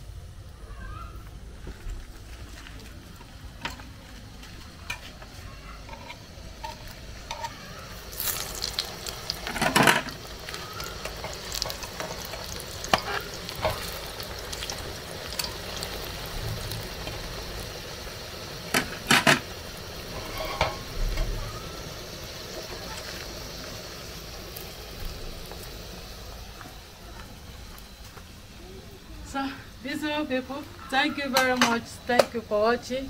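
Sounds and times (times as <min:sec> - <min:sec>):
food sizzling in hot oil: 0:03.0 - 0:33.0
fork and spatula scraping pan: 0:20.1 - 0:20.8.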